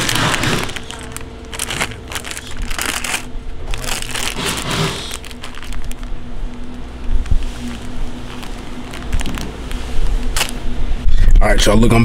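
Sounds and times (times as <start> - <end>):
plastic packets crinkling: 0.0 - 10.7
faint steady hum: 0.0 - 12.0.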